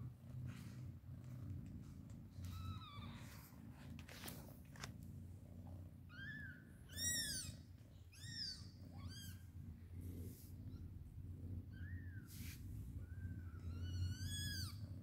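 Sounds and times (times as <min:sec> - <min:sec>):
newborn kittens mewing: 0:06.1 - 0:09.5, 0:11.6 - 0:15.0.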